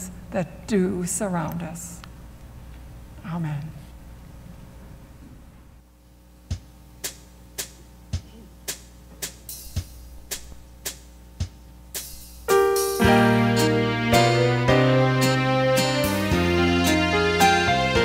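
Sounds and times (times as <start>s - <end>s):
piano chords with bass line: 12.5s - 18.0s.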